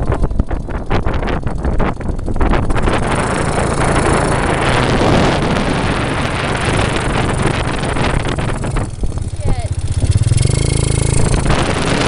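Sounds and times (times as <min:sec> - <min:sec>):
quad engine drone: 0:00.0 - 0:12.0
wind buffeting microphone: 0:00.0 - 0:12.0.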